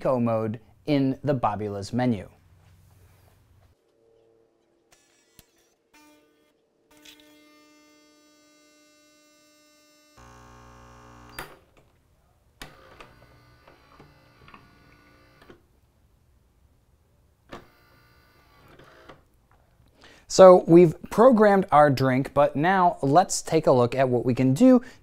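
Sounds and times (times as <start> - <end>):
espresso machine pump buzz: 6.9 - 11.6
espresso machine hum: 10.2 - 11.4.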